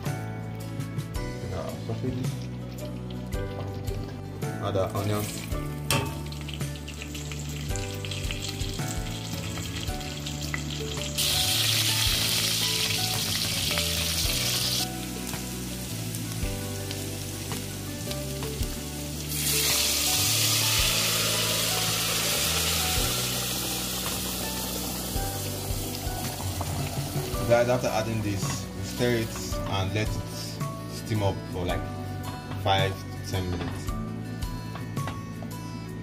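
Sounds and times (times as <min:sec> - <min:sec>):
background music: 0:00.0 - 0:36.0
onions sizzling in oil: 0:05.2 - 0:29.2.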